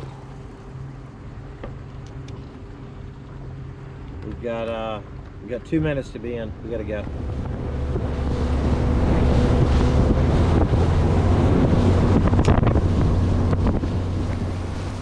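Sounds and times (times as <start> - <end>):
outboard motor droning: 0.0 - 15.0
wind buffeting microphone: 6.5 - 15.0.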